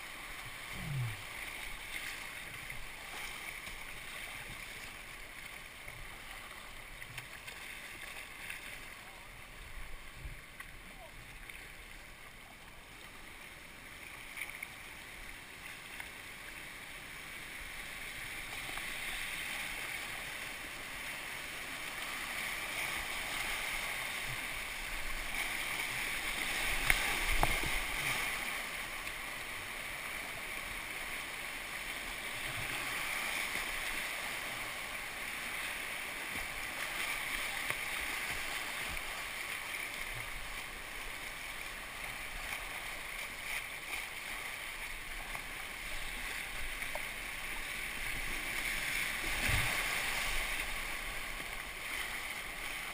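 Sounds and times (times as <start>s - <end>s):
river rapids rushing: 17.8s - 52.9s.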